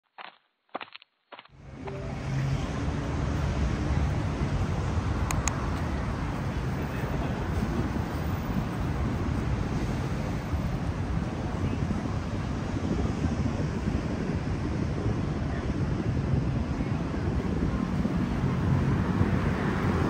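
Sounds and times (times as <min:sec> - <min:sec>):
road traffic: 0:01.5 - 0:20.0
brief high tone: 0:01.7 - 0:03.0.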